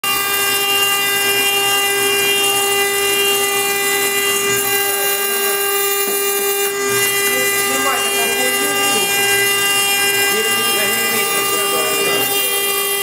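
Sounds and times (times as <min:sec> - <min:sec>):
router spindle whine: 0:00.0 - 0:13.0.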